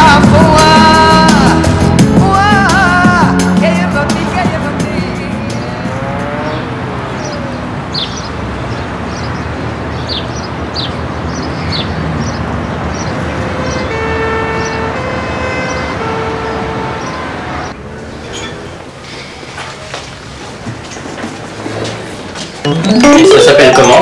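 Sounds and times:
city traffic noise: 0.0 - 24.0
two-tone emergency siren: 13.3 - 17.7, 22.7 - 24.0.

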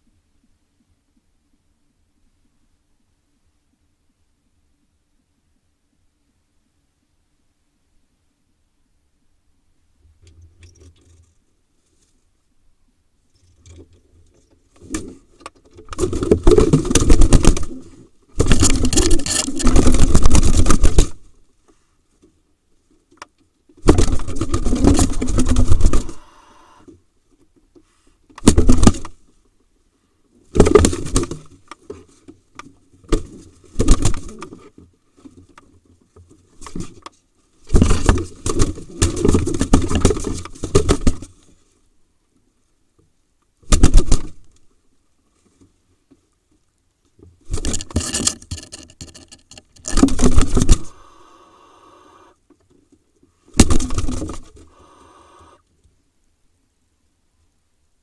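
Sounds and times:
pigeon wings flapping: 23.8 - 26.2.

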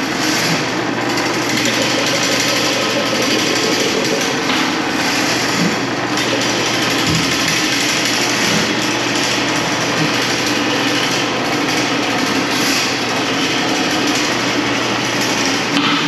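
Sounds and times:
electric drain snake machine running: 0.0 - 16.0.

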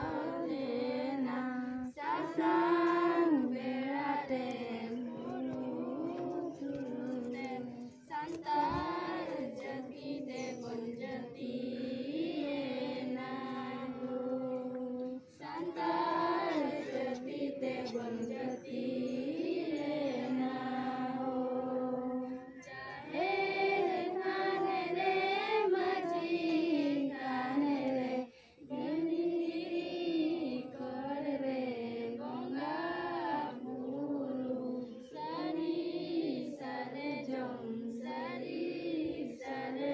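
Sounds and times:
children and women singing: 0.0 - 39.9.

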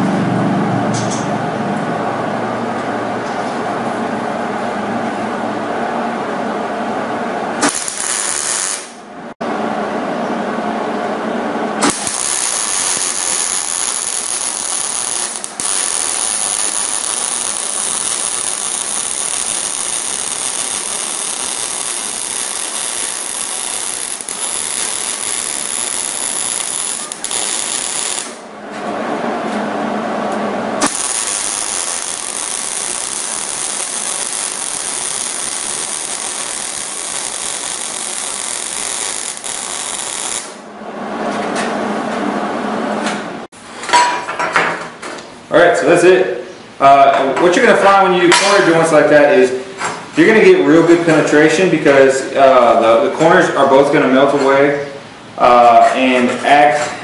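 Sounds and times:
welding arc crackling: 7.6 - 9.0, 11.8 - 28.5, 30.8 - 40.7.

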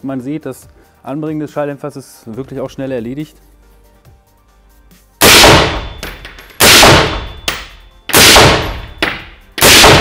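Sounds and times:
suppressed rifle shots echoing: 5.2 - 10.0.

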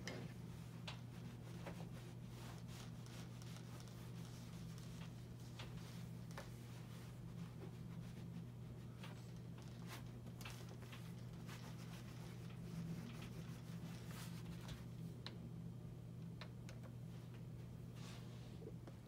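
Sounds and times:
steady low hum: 0.0 - 19.0
iron rubbing on fabric: 0.6 - 8.6, 11.0 - 14.7.

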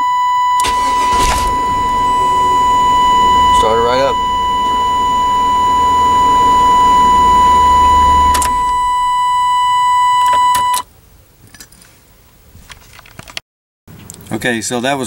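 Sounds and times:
high-pitched beep: 0.0 - 10.8
ignition clicks: 0.0 - 10.8
car engine running: 0.6 - 10.6.

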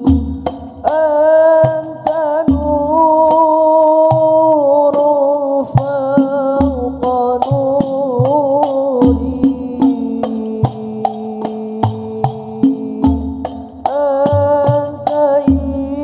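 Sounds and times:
frame drums striking: 0.0 - 3.4.

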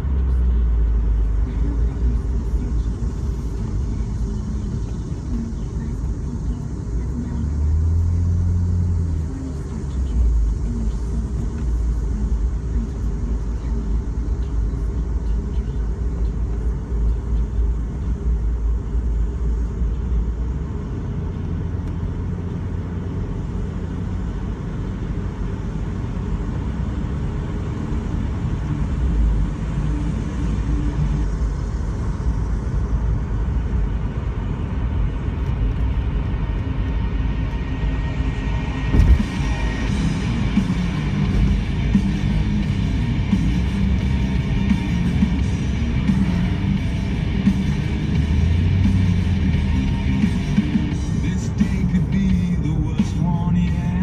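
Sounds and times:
car engine and road rumble: 0.0 - 54.0
music: 37.4 - 54.0.

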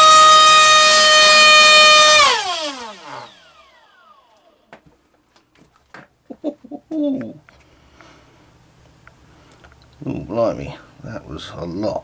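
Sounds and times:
electric motor high-pitched whine: 0.0 - 4.7.

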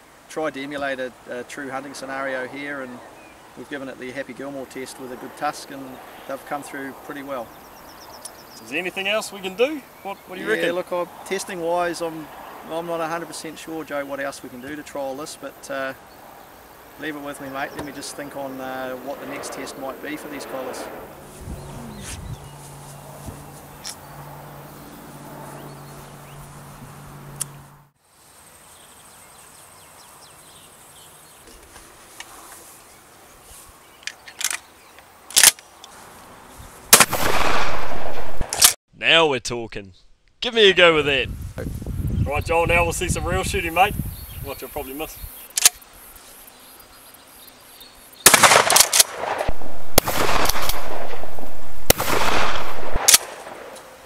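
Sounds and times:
shotgun blasts: 36.9 - 38.8, 48.2 - 54.0.

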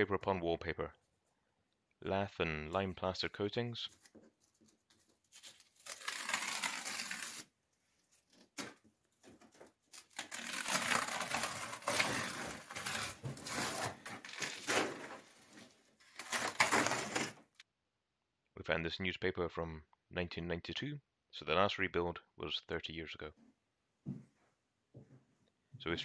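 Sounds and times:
paper crackles: 3.9 - 17.6
wallpaper tearing: 5.2 - 7.5, 8.2 - 17.6.

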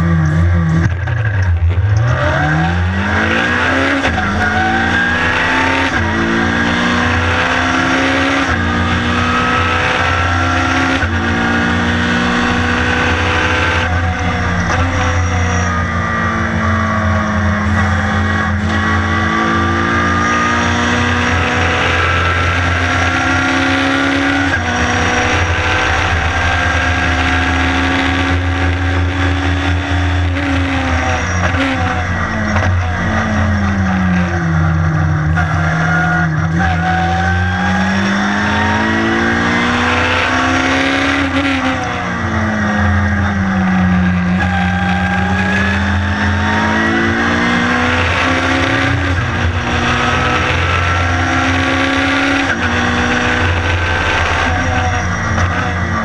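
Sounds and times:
race car engine accelerating: 0.0 - 56.0
low cabin drone: 12.1 - 19.6, 24.3 - 35.6.

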